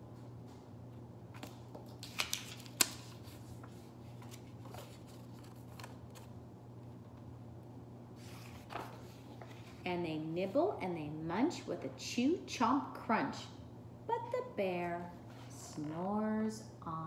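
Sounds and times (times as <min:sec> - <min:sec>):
steady low hum: 0:00.0 - 0:17.0
paper crinkles and taps: 0:01.3 - 0:06.3
paper rustling: 0:01.4 - 0:06.3, 0:08.2 - 0:09.8.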